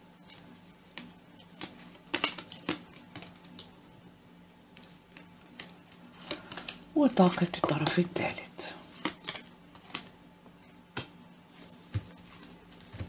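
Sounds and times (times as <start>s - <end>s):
cards flicked and tapped: 8.9s - 10.1s, 10.9s - 11.2s.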